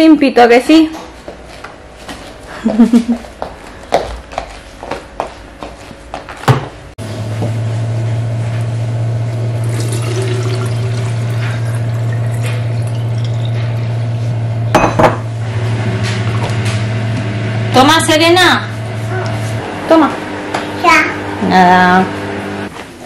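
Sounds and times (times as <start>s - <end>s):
water pouring into plastic bottle: 9.6s - 13.6s
glass carafe knocking on counter: 14.7s - 15.2s.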